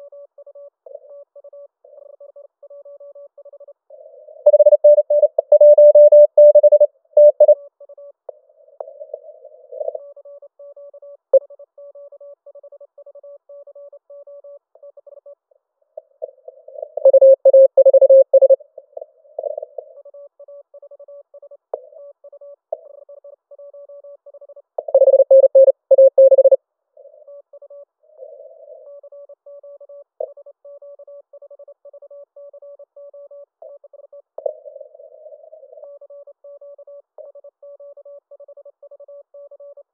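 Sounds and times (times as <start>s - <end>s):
morse code tones: 4.4s - 7.6s, 17.0s - 18.6s, 24.9s - 26.6s
faint morse code keying: 4.5s - 7.6s, 17.0s - 18.6s, 24.8s - 26.6s.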